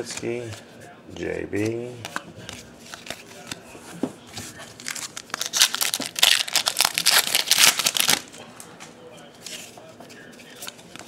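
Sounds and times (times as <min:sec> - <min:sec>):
foil wrapper crinkling and tearing: 0:04.8 - 0:08.3.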